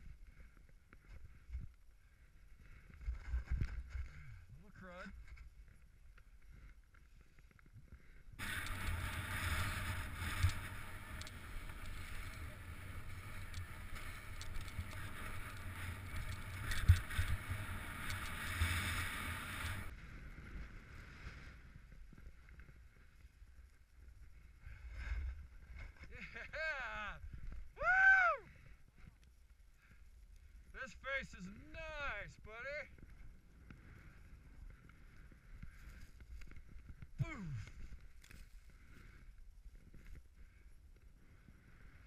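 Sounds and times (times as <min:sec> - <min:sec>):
low wind rumble: 0:08.2 - 0:26.2
skis scraping on snow: 0:08.4 - 0:23.1.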